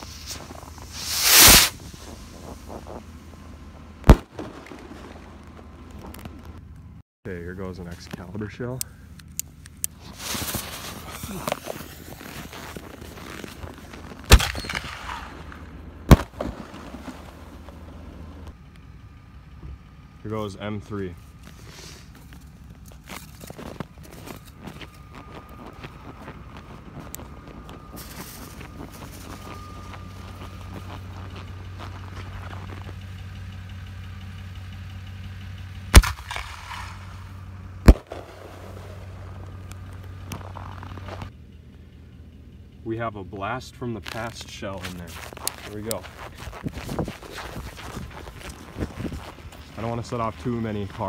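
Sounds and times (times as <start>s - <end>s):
firework launch bang: 0.0s - 2.8s, 4.0s - 5.3s, 14.3s - 17.3s, 35.9s - 39.1s
firework shell bursting: 0.0s - 3.1s, 4.0s - 5.4s, 14.3s - 17.3s, 36.0s - 39.3s.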